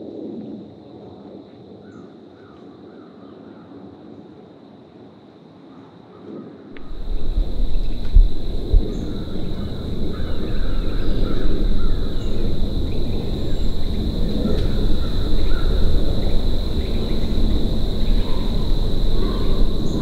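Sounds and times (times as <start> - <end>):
high whine: 6.8 - 20.0
low rumble: 6.8 - 20.0
crows cawing: 8.9 - 17.2.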